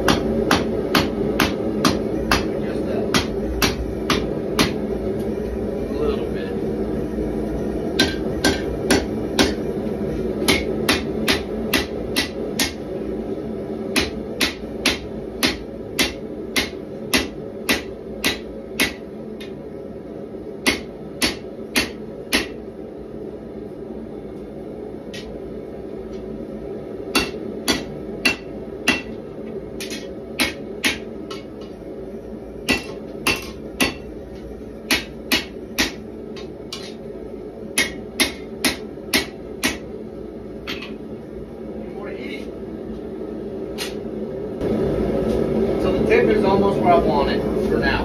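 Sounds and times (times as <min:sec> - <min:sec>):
hammer striking metal on anvil: 0:00.0 - 0:04.8, 0:08.0 - 0:09.7, 0:10.4 - 0:12.8, 0:13.9 - 0:19.6, 0:20.6 - 0:22.6, 0:27.1 - 0:29.2, 0:29.8 - 0:31.8, 0:32.6 - 0:34.1, 0:34.9 - 0:37.0, 0:37.7 - 0:39.9
steady background hum: 0:00.0 - 0:48.0.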